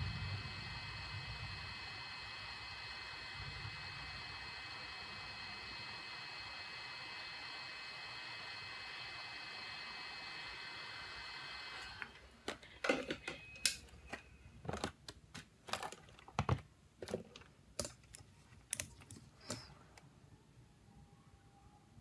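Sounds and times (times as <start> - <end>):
hot-air gun airflow hiss: 0.0 - 12.4, 19.2 - 19.8.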